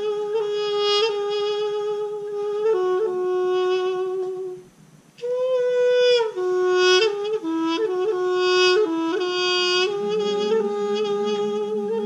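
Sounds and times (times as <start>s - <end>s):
folk wind pipe melody: 0.0s - 12.0s.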